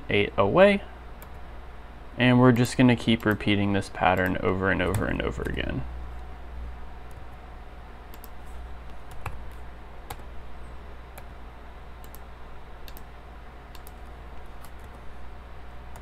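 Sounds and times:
low electrical hum: 0.0 - 16.0
keyboard keystrokes: 2.6 - 3.5.

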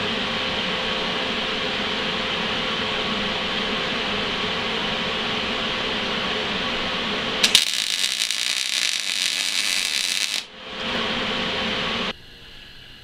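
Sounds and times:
steady hum: 0.0 - 13.0
welding arc crackling: 7.4 - 10.5.

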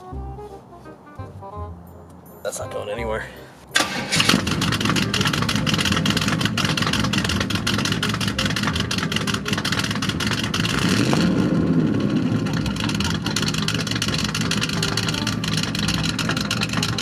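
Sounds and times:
car engine running: 3.8 - 17.0.

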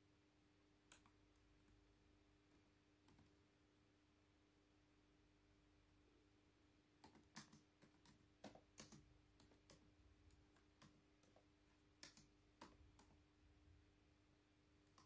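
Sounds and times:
laptop keyboard typing: 2.5 - 3.4, 7.0 - 13.3, 14.8 - 15.0.

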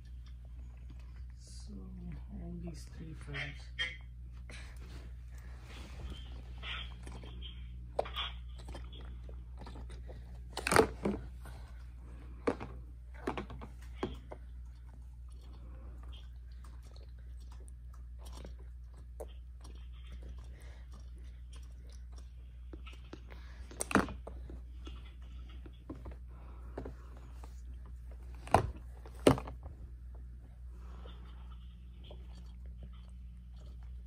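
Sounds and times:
baby sucking and swallowing: 31.1 - 34.0.

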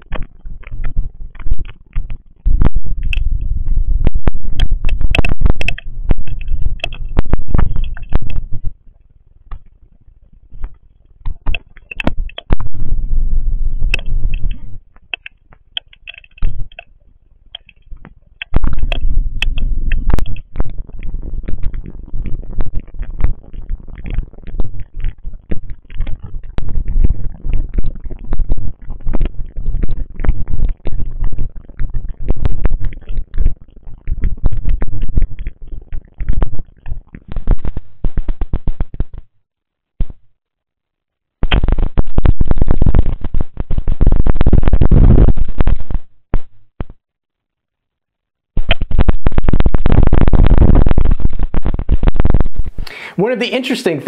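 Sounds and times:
rain crackling: 0.0 - 39.2, 48.6 - 54.0
low rumble: 2.4 - 8.8, 12.1 - 14.9.

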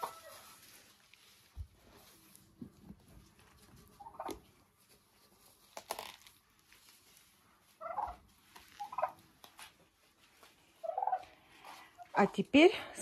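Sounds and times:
turkeys calling: 4.0 - 4.4, 7.8 - 9.2, 10.8 - 11.3.

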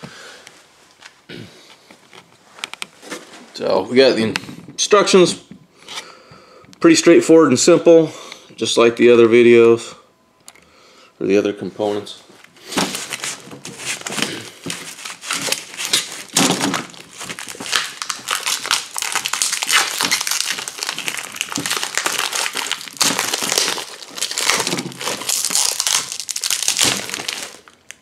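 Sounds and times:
plastic bag crinkling: 12.6 - 28.0.

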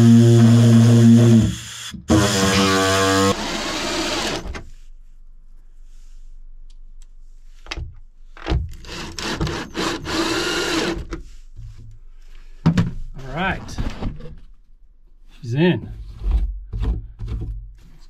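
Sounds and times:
power tool cutting panel: 0.0 - 4.5.

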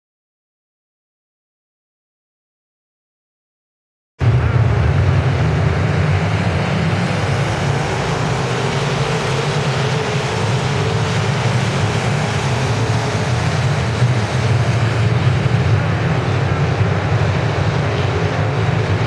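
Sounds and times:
race car engines droning: 4.2 - 19.0.

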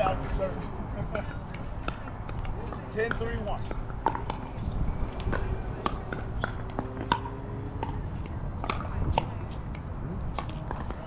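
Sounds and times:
ball bouncing on hard court: 1.8 - 9.5, 10.3 - 11.0.

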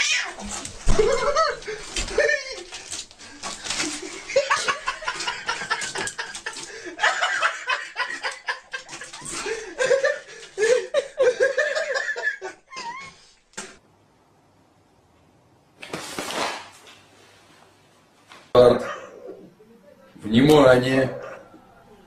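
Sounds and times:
person laughing: 0.9 - 2.8, 3.9 - 13.3.

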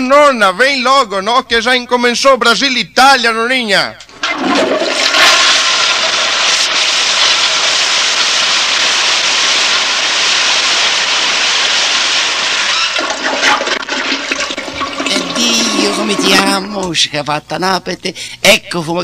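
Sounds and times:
toilet flushing: 4.1 - 16.8.

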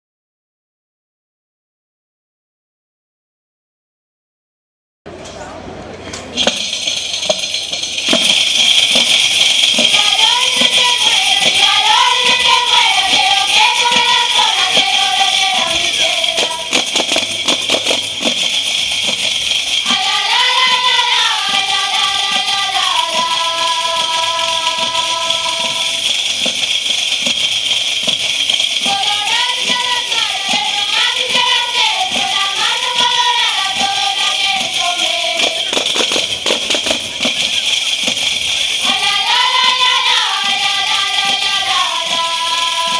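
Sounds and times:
jingling frame drums: 6.3 - 42.9
women singing: 9.6 - 17.3, 19.8 - 26.1, 28.8 - 35.7, 38.8 - 42.9.

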